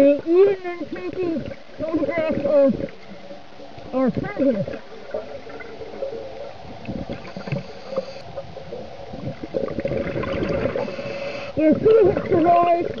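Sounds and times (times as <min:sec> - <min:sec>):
low underwater hum: 0:00.0 - 0:13.0
underwater clicks and crackle: 0:00.0 - 0:13.0
diver exhaling bubbles: 0:06.8 - 0:11.5.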